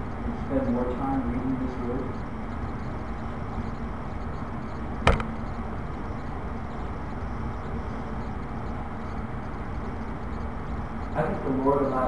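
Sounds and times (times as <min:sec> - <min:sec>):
low room rumble: 0:00.0 - 0:12.0
sharp knock: 0:05.0 - 0:05.3.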